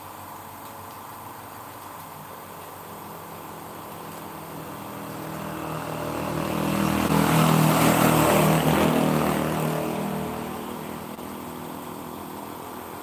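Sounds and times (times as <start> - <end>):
passing vehicle engine hum: 4.0 - 13.0.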